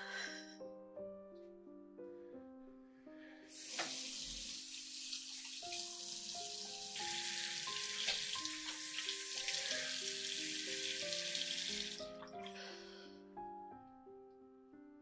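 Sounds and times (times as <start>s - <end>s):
slow soft background music: 0.0s - 15.0s
sink tap running: 3.5s - 12.3s.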